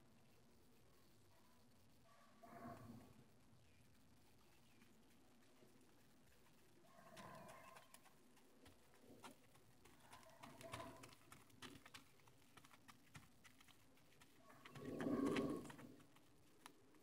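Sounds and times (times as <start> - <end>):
horse hooves on gravel: 4.3 - 17.0.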